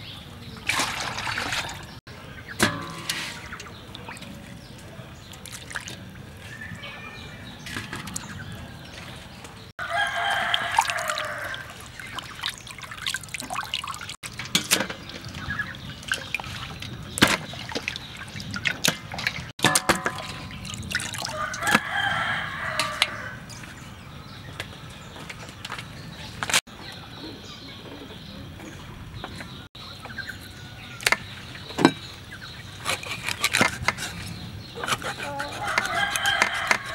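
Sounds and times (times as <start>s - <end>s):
dripping water: 0.6s - 6.4s, 10.2s - 23.2s
rooster crowing: 9.8s - 11.8s, 21.2s - 23.5s, 35.4s - 36.9s.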